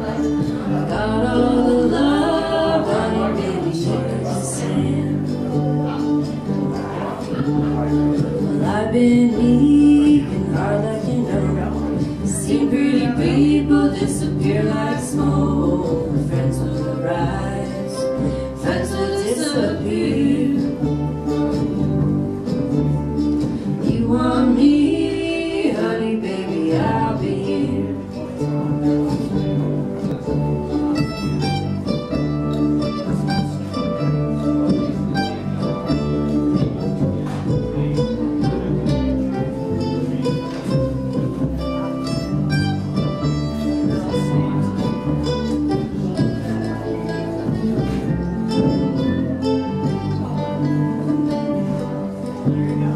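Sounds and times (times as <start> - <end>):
person singing: 0.0 - 6.0, 8.4 - 21.4, 23.8 - 28.5
acoustic guitar picking: 0.0 - 52.9
plucked upright bass: 0.0 - 52.9.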